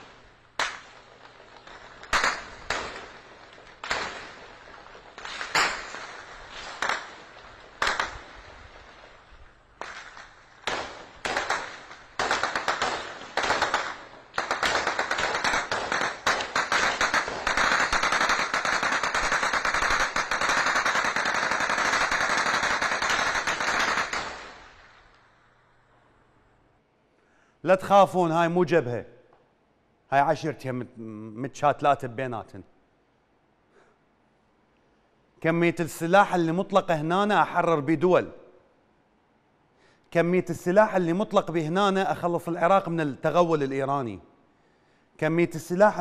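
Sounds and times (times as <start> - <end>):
gunfire: 0.0 - 9.0, 9.8 - 25.0.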